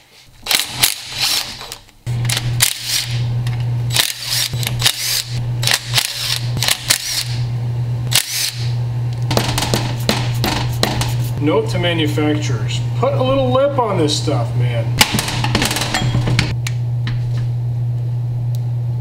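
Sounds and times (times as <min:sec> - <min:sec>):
impact driver hammering: 0:09.3 - 0:11.2, 0:15.0 - 0:16.6.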